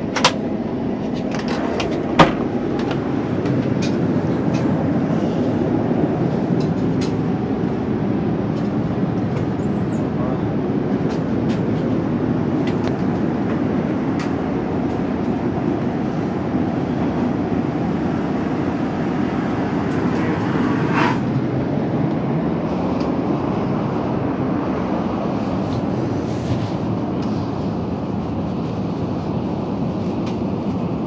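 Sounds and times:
aircraft cabin air and engine noise: 0.0s - 31.0s.

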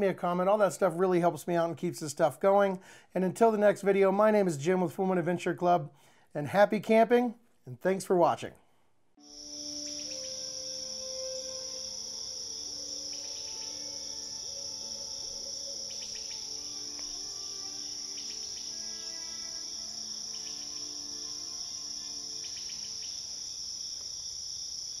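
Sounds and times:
soft background music: 9.2s - 23.4s
crickets chirring: 9.2s - 25.0s.

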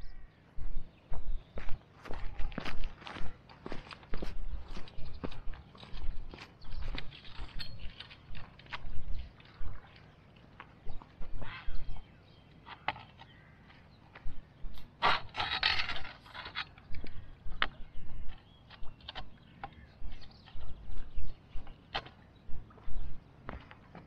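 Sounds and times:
fishing gear clicks and knocks: 2.4s - 9.9s, 12.6s - 22.2s
scraping rustle: 15.0s - 17.0s.

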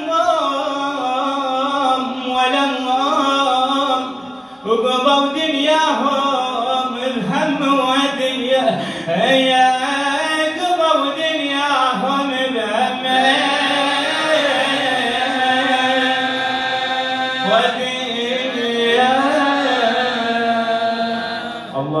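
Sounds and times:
man chanting mournful elegy: 0.0s - 22.0s.

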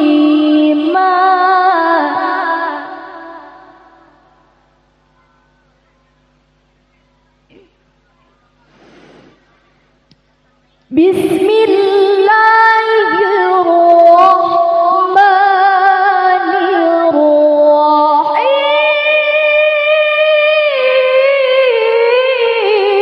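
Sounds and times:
woman chanting into a microphone: 10.9s - 23.0s.

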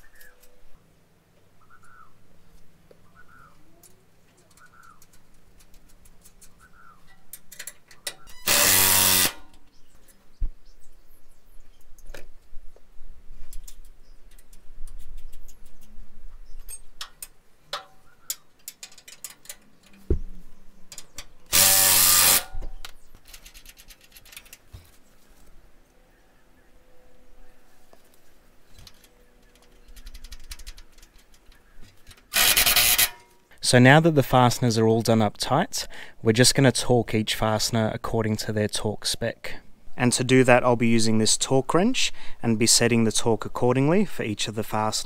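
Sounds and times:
small metal clicks and taps: 3.8s - 8.2s, 16.6s - 20.1s
power tool bursts: 8.4s - 9.6s, 21.5s - 22.6s, 32.3s - 33.3s.

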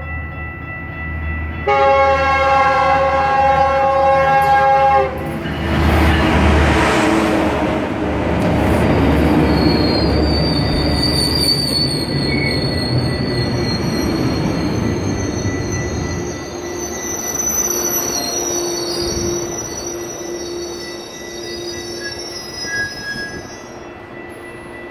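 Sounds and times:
train wheels rumbling: 2.4s - 24.9s
brakes squealing: 8.8s - 23.7s.

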